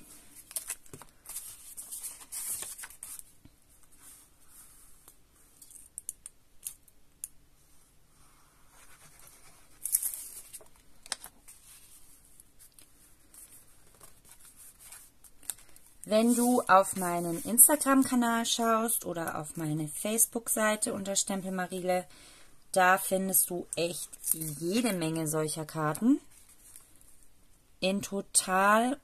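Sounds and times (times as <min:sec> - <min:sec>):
paper rustling and sliding: 0:00.2 - 0:05.1, 0:08.7 - 0:18.0.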